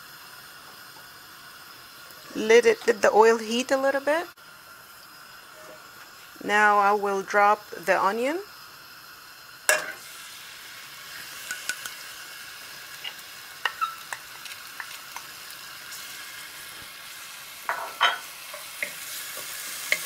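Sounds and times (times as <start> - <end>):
oil sizzling: 0.0 - 20.0
onion splashing into hot oil: 8.0 - 20.0.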